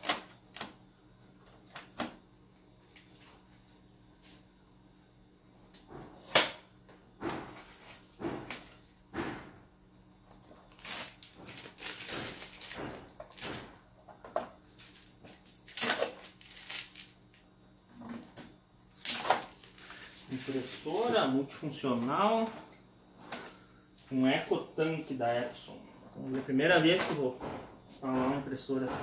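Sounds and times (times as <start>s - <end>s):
plastic film peeling and crinkling: 0.0s - 0.8s, 10.6s - 13.6s, 14.8s - 17.4s, 18.9s - 21.3s.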